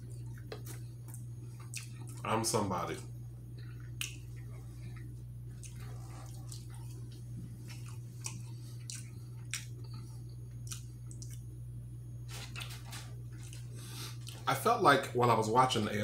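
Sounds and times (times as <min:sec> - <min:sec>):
person chewing food: 0:00.0 - 0:02.3, 0:03.4 - 0:11.6, 0:12.3 - 0:14.5
steady low hum: 0:00.0 - 0:16.0
wet mouth smacks and clicks: 0:04.0 - 0:04.3, 0:10.6 - 0:11.4.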